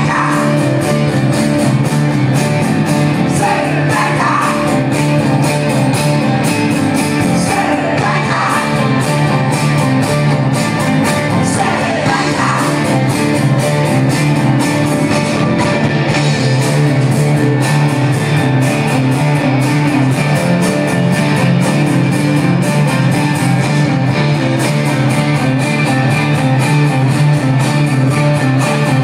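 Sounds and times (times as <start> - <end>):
person singing: 0.0 - 1.1, 3.2 - 5.2, 7.2 - 9.4, 11.0 - 13.5
live rock band playing: 0.0 - 29.0.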